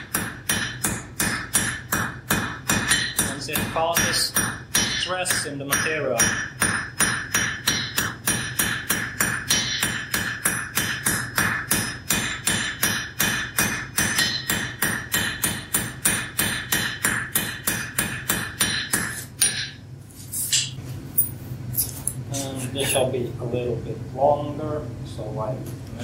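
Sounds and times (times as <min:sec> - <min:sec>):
anvil ringing: 0:00.0 - 0:19.8
hammer striking hot metal: 0:00.0 - 0:19.8.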